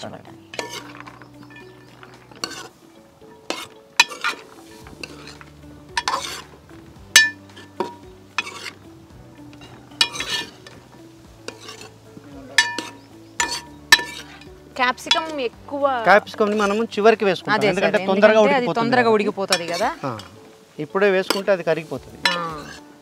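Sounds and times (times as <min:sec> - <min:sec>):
vegetables sizzling: 0:00.0 - 0:23.0
spatula scraping a pan: 0:00.5 - 0:15.5, 0:16.3 - 0:17.0, 0:19.5 - 0:20.5, 0:21.2 - 0:23.0
metal clink against pan: 0:12.6 - 0:14.4.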